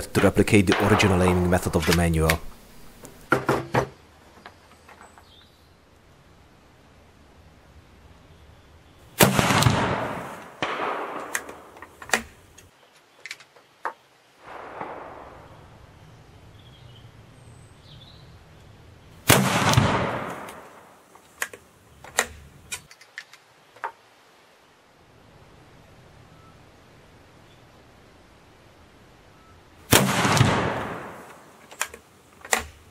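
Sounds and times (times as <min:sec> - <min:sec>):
rifle shots echoing: 0:00.2 - 0:02.4, 0:09.2 - 0:12.4, 0:14.4 - 0:16.0, 0:19.2 - 0:21.1, 0:29.9 - 0:31.6.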